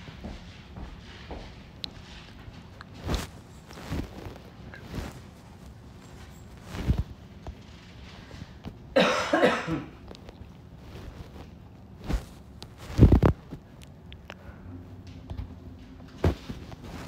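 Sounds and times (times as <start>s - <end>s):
person coughing: 8.9s - 10.0s.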